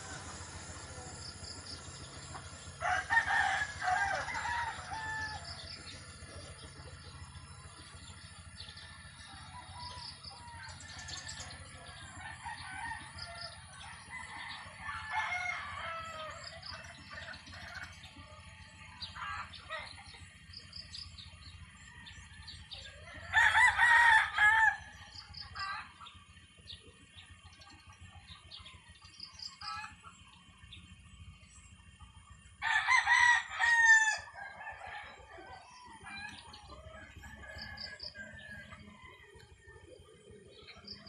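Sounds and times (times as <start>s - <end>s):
small birds chirping: 0.4s - 23.8s, 24.4s - 32.6s, 34.2s - 41.0s
rooster crowing: 2.8s - 5.8s, 8.6s - 17.8s, 21.8s - 25.7s, 32.6s - 39.6s.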